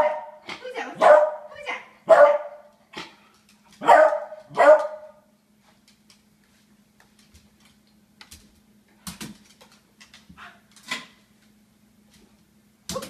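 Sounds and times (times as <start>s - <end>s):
dog claws clicking on hardwood floor: 5.7s - 11.2s.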